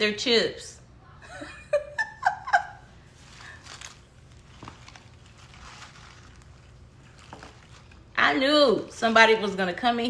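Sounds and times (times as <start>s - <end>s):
soft handling noises: 3.0s - 8.1s.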